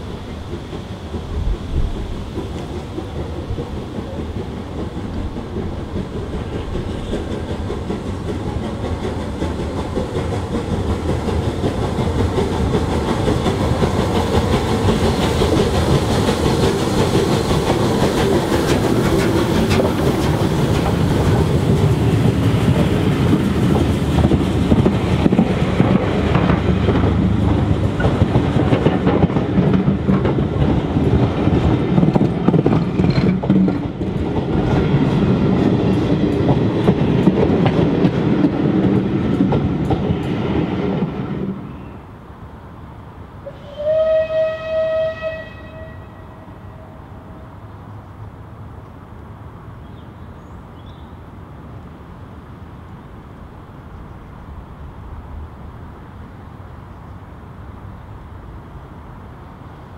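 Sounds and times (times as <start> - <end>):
wheels clattering over rail joints: 0.0 - 41.4
steam locomotive passing: 0.0 - 59.9.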